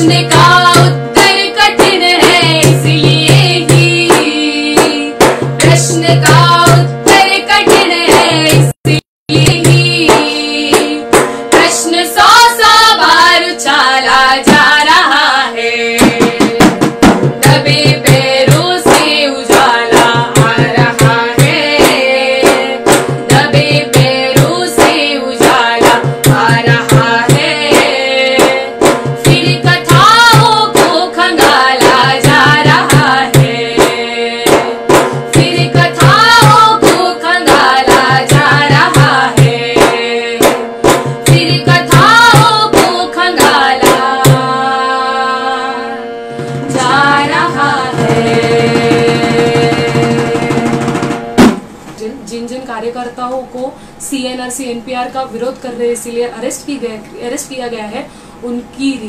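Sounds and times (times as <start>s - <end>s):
hand-struck drum beating: 0.0s - 13.4s, 16.0s - 44.6s, 46.3s - 51.8s
women singing: 0.0s - 51.0s.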